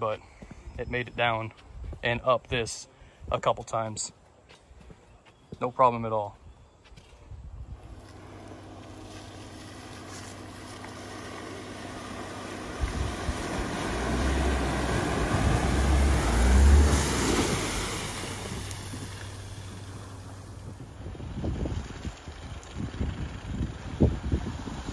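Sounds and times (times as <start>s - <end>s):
truck engine under load: 7.8s - 24.9s
water splashing around wheels: 7.9s - 24.9s.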